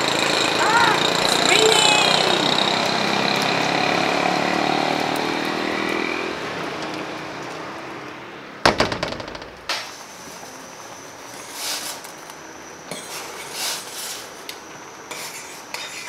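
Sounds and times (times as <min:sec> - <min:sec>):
steady rain falling: 0:00.0 - 0:08.6
glass sliding door rattling shut: 0:08.7 - 0:10.0.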